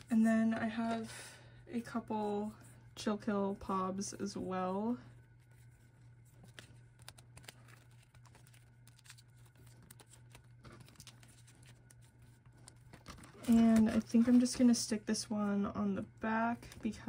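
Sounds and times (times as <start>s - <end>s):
low steady hum: 0.0s - 17.0s
plastic sleeves crinkling: 5.3s - 14.8s.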